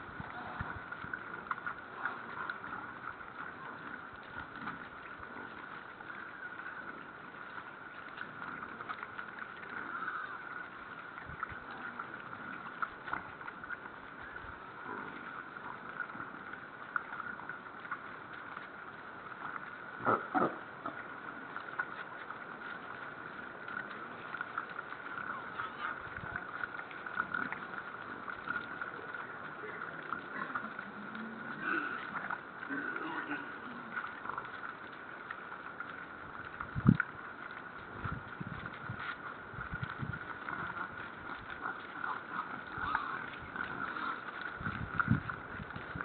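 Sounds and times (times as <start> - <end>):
boar crunching and snuffling: 19.5 - 46.0.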